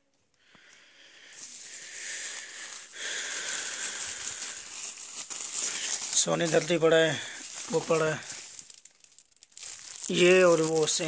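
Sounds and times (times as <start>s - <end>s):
plastic bags rustling: 0.6s - 11.0s.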